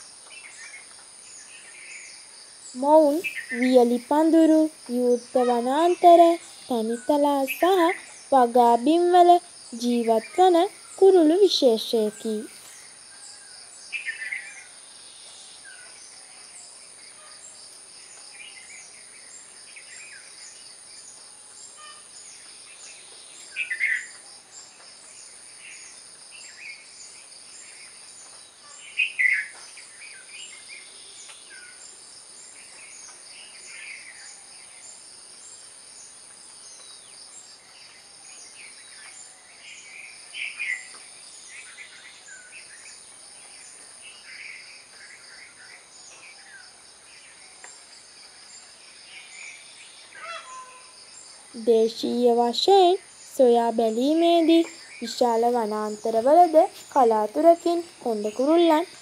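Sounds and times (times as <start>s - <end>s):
high-pitched insect chorus: 0.0s - 59.0s
short bird calls: 50.1s - 50.9s.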